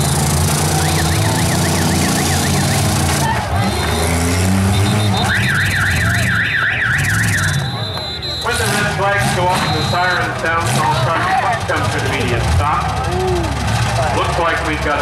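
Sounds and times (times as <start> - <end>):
car engines droning: 0.0 - 15.0
warbling alarm tone: 0.8 - 3.0, 4.7 - 8.4.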